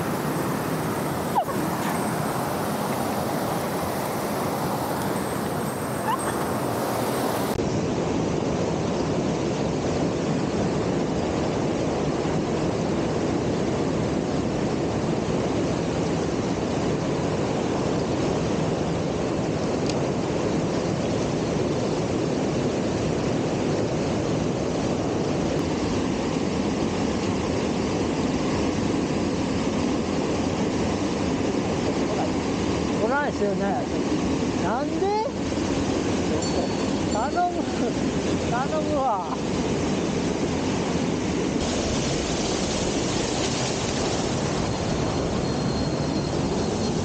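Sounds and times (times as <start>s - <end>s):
waterfall roaring: 0.0s - 8.6s, 21.8s - 47.0s.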